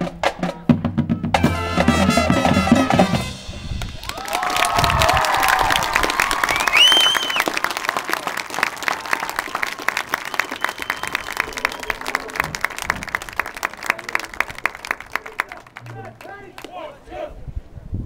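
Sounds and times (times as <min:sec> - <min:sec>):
crowd applauding: 0:03.8 - 0:16.7
shrill whistle from audience: 0:06.4 - 0:07.6, 0:10.2 - 0:12.2.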